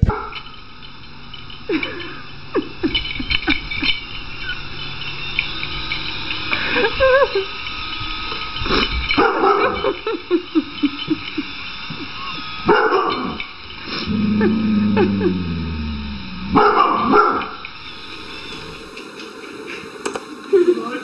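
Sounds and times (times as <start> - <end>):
dog barking: 9.2 - 9.8, 12.7 - 13.4, 16.5 - 17.6
dog yipping: 9.2 - 9.9, 12.2 - 13.4, 16.6 - 17.6.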